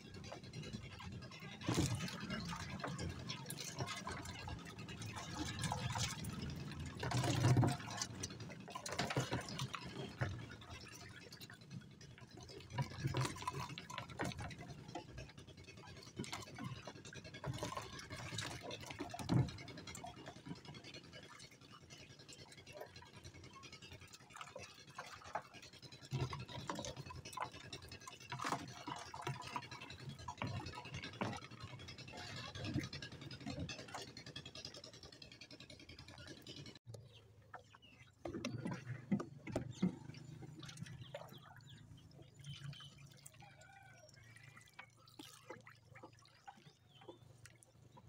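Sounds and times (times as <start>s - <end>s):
water dripping and splashing: 37.6s - 48.0s.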